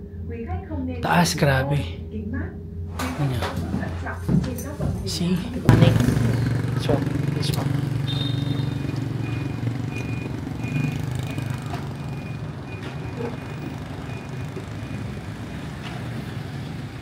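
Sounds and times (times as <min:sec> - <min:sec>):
vehicle engine humming: 0:02.8 - 0:17.0
short high beeps: 0:08.0 - 0:15.2.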